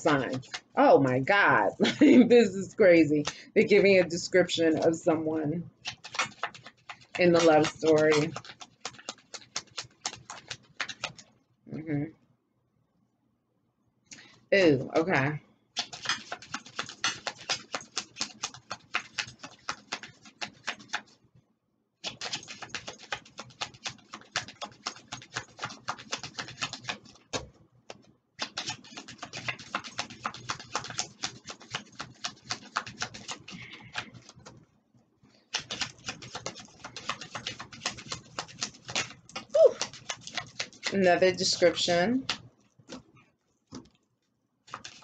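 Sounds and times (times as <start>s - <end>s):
cards being shuffled: 0.0s - 1.4s, 5.8s - 11.3s, 15.8s - 21.2s, 22.0s - 34.6s, 35.5s - 43.1s, 44.7s - 45.0s.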